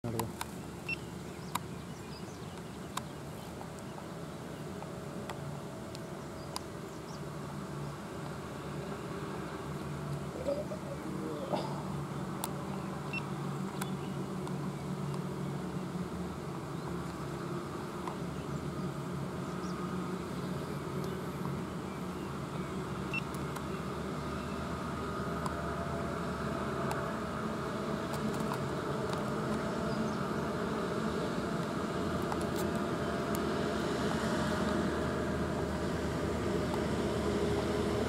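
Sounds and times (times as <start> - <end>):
truck engine drone: 4.4 - 38.0.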